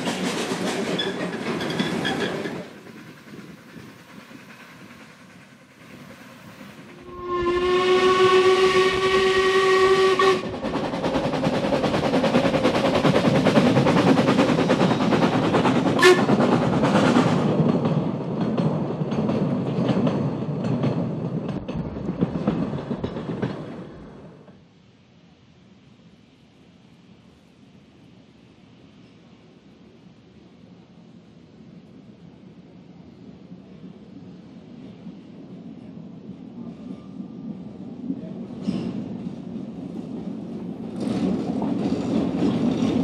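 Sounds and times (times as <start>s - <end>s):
carriages rattling on track: 0.0s - 7.1s, 8.0s - 24.5s, 38.5s - 43.0s
steam locomotive exhaust: 0.0s - 17.6s
steam locomotive whistle: 7.0s - 10.6s, 16.0s - 16.4s.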